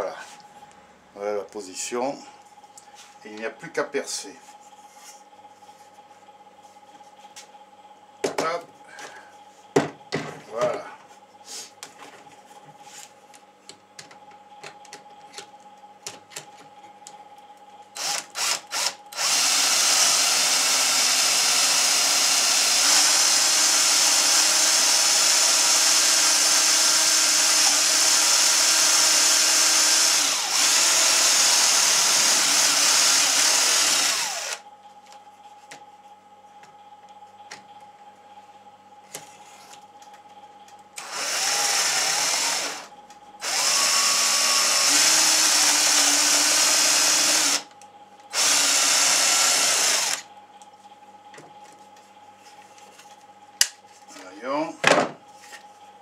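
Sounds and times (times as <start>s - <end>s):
cordless drill boring wood: 18.0s - 34.6s, 41.0s - 47.7s, 48.3s - 50.2s.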